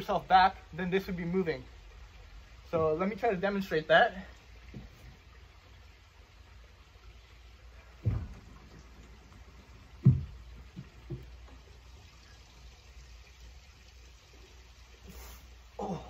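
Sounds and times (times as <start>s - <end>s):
thuds on wooden deck: 8.0s - 8.7s, 10.0s - 11.3s.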